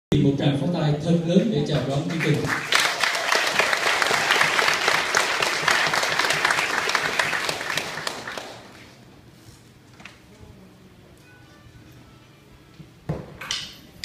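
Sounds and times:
audience applauding: 0:01.8 - 0:09.0.

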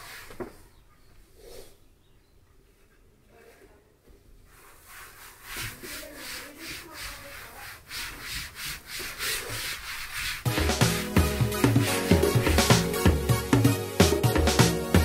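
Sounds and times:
wet wipe scrubbing floor: 0:00.0 - 0:01.8, 0:03.4 - 0:13.5.

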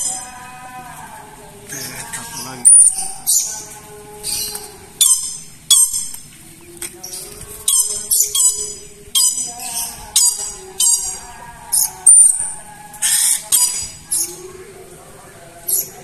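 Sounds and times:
parrot squawking: 0:00.0 - 0:00.4, 0:01.8 - 0:03.6, 0:04.2 - 0:06.2, 0:07.6 - 0:14.4.

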